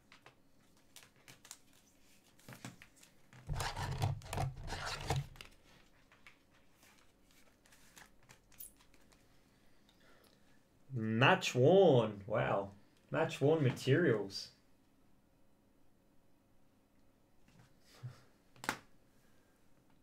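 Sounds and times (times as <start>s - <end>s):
trading cards rustling and clicking: 0.1s - 9.4s
packaging rubbing and scraping: 3.5s - 5.5s.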